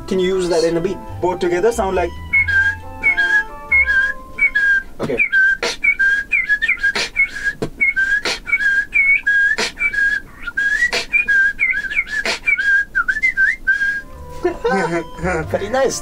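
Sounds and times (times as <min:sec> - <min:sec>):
whistled bird chirps: 0:02.2 - 0:14.1
beatboxed percussion: 0:05.0 - 0:12.9.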